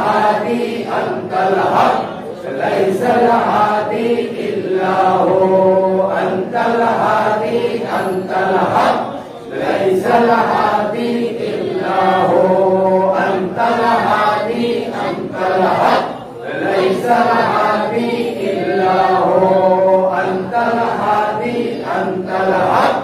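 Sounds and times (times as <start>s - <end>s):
men chanting: 0.0s - 23.0s.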